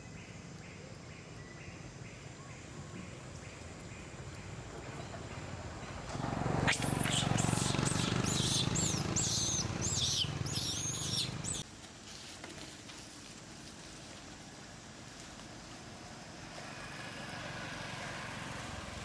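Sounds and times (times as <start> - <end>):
high-pitched animal calls: 6.7 - 11.6.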